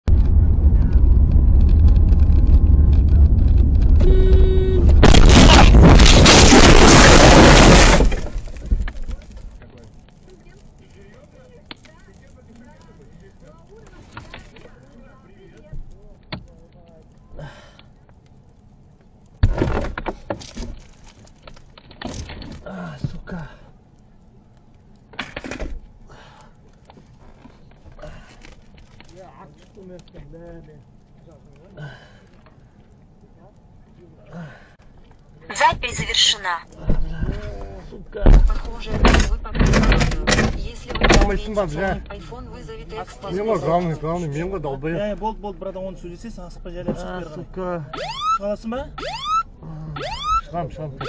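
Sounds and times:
road and engine rumble: 0.0s - 51.0s
car crash and windshield shattering: 0.1s - 9.8s, 19.4s - 23.2s
car horn honking: 4.0s - 5.0s
thuds and knocks inside car: 38.2s - 41.3s.

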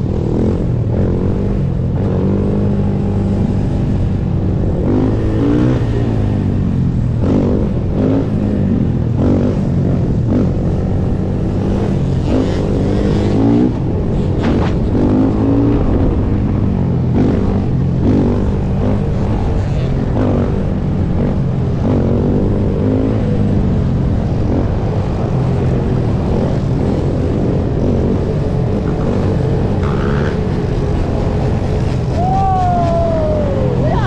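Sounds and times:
atv engine revving: 0.0s - 34.0s
other quads and dirt bikes: 0.0s - 34.0s.

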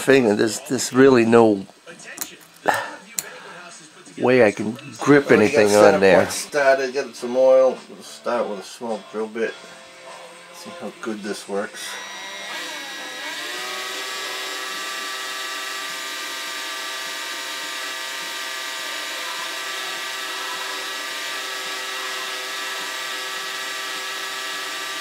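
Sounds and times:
cordless drill boring into steel: 11.8s - 25.0s.

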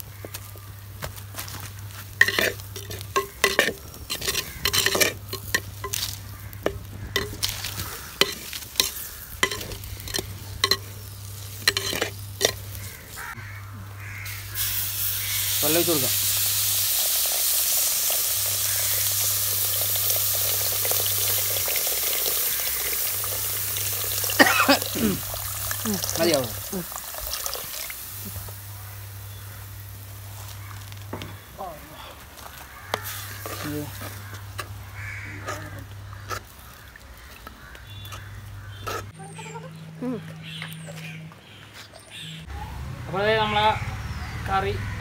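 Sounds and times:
splashing and sizzling: 0.0s - 31.6s, 32.2s - 39.2s
metal ladle stirring in clay pot: 2.1s - 13.0s, 32.9s - 36.6s
water pouring into a pot: 14.6s - 28.2s.

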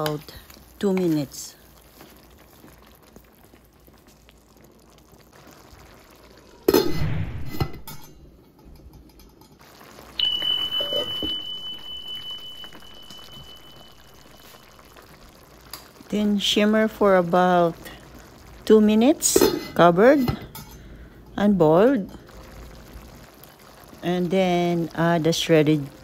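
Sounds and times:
stew simmering in a pan: 0.0s - 26.0s
metal cookware clatter: 7.6s - 9.6s
high ringing tone: 10.2s - 15.2s.

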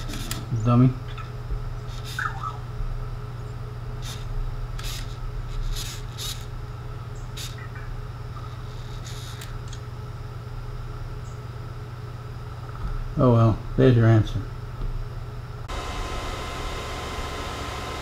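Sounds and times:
low electrical hum: 0.0s - 18.0s
robot electronic chirps: 2.1s - 2.6s.

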